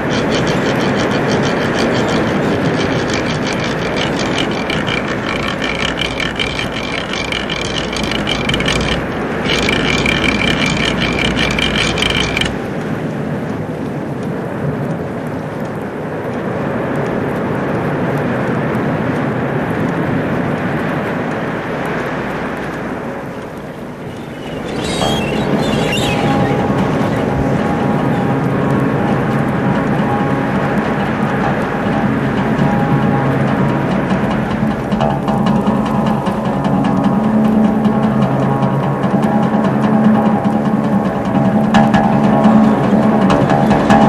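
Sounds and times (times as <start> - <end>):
fast mechanical clicking rattle: 0.0 - 12.9
rushing noise like wind and surf: 8.4 - 44.0.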